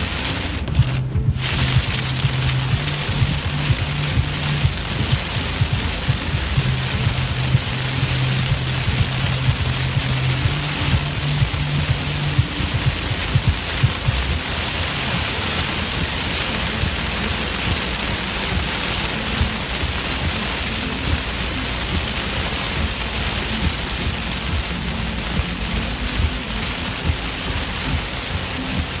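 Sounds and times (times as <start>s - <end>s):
heavy rain on car roof: 0.0s - 29.0s.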